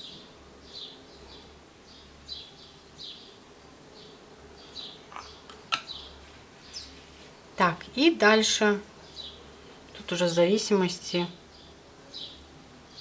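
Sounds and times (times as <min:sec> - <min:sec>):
small bird chirping: 0:04.0 - 0:07.0.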